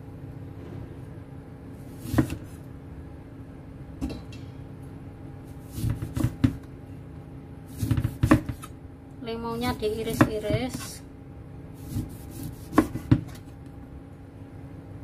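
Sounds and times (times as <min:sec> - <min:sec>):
steady low hum: 0:00.0 - 0:15.0
knife slicing lemon: 0:01.9 - 0:02.6, 0:11.8 - 0:13.5.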